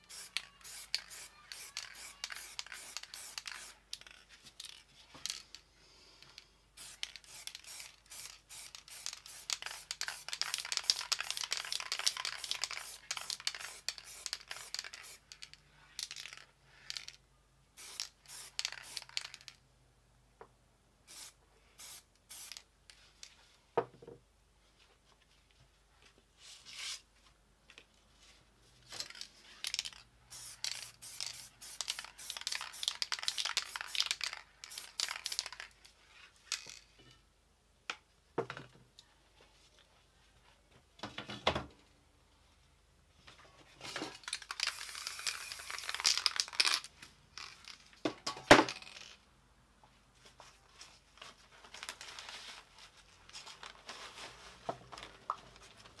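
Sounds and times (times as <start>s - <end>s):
spray paint can hissing: 0.0s - 4.2s, 6.8s - 15.4s, 17.8s - 19.4s, 21.1s - 22.6s, 29.7s - 35.7s, 44.4s - 46.8s.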